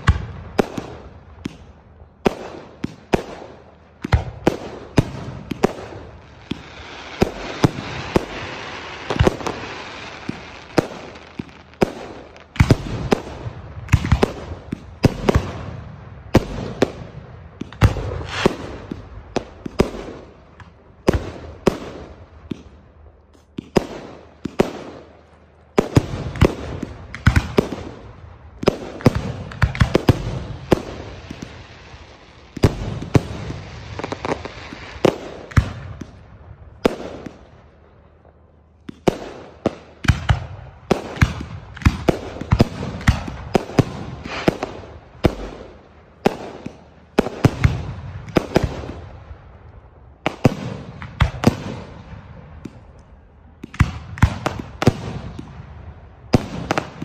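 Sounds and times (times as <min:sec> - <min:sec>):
fireworks booming: 0:00.0 - 0:49.6
steady hiss: 0:05.8 - 0:12.5.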